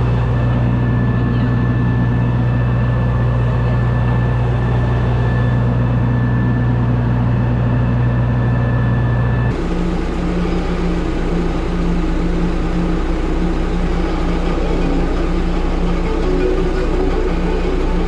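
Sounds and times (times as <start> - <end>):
steady machine hum: 0.0 - 18.0
tractor engine running: 0.0 - 18.0.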